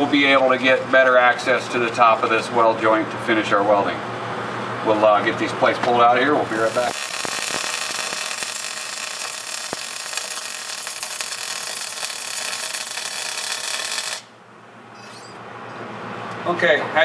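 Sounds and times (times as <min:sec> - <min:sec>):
welding arc crackling: 0:06.5 - 0:14.3.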